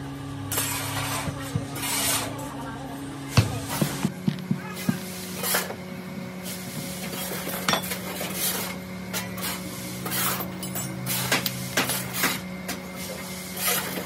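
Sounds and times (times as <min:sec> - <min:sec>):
steady low hum: 0:00.0 - 0:14.0
metal tools scraping sand: 0:00.5 - 0:02.5, 0:04.8 - 0:05.7, 0:06.5 - 0:12.4, 0:13.0 - 0:14.0.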